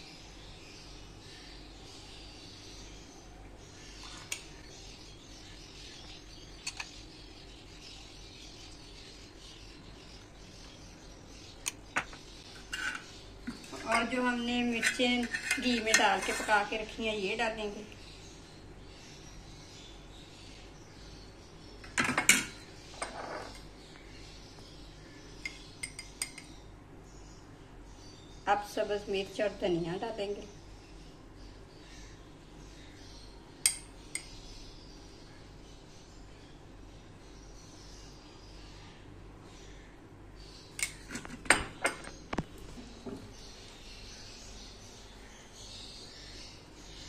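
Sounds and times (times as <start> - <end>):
spoon scraping glass bowl: 12.6 - 13.1, 14.7 - 16.7, 22.9 - 23.7
spoon clinking on glass bowls: 25.5 - 26.5.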